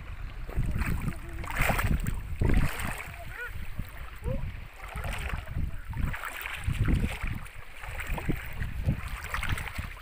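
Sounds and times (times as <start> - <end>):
seawater sloshing and splashing: 0.0 - 10.0
wind gusting on microphone: 0.0 - 10.0.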